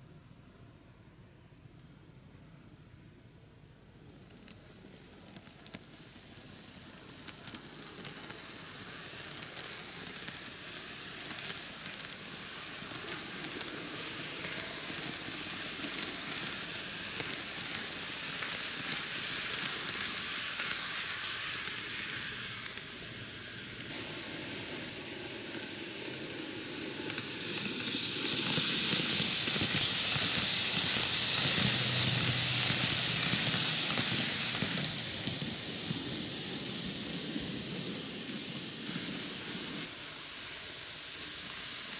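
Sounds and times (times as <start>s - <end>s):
model train wheels rattling on rails: 4.0s - 41.9s.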